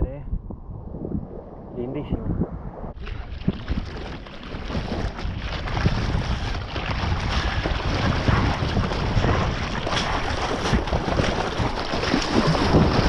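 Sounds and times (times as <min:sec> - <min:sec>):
wind buffeting microphone: 0:00.0 - 0:13.0
water rushing and splashing: 0:02.9 - 0:13.0.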